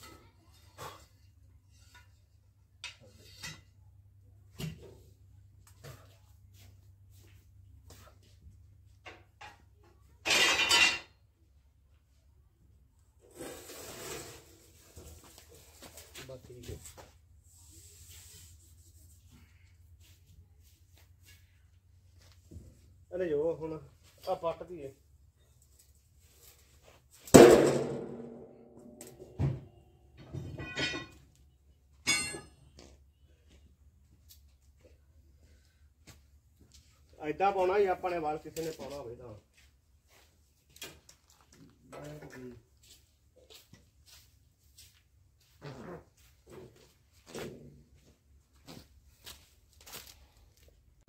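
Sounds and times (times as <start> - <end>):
steel sheet scraping and rattling: 13.3 - 15.1
ringing metal clanks: 30.3 - 31.3, 32.0 - 32.8.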